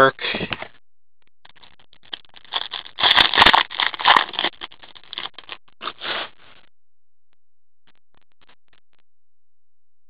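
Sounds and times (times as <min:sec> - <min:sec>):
trading cards rustling: 0:02.1 - 0:06.2.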